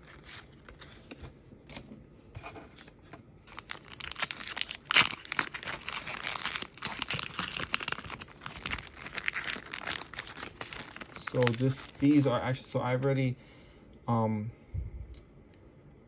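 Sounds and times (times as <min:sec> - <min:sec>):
foil wrapper tearing and crinkling: 0:03.5 - 0:12.4.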